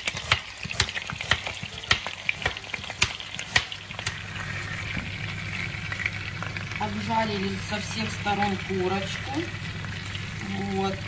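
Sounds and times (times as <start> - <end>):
knife chopping on cutting board: 0.0 - 4.2
chicken sizzling in oil: 0.0 - 11.0.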